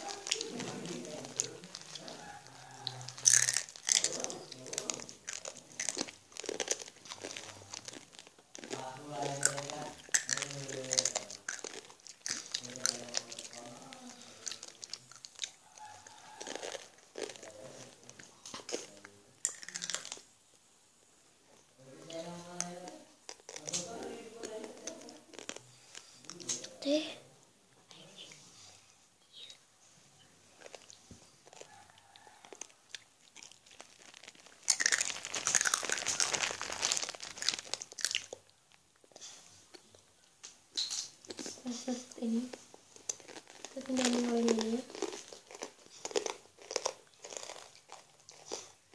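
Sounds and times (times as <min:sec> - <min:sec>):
faint low voices: 0:00.0 - 0:03.2
ribbon rustling and crinkling: 0:00.0 - 0:19.0, 0:30.5 - 0:39.7, 0:40.8 - 0:48.9.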